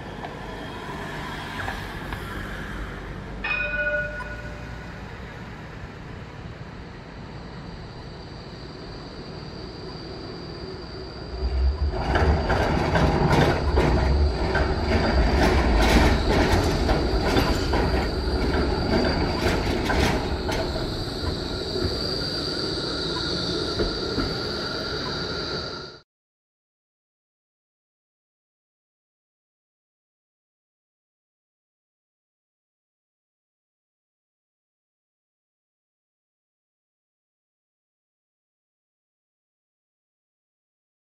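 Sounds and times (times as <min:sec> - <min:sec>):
tram wheels clattering on track: 0:00.0 - 0:05.5, 0:11.2 - 0:25.8
tram low rumble: 0:00.0 - 0:26.0.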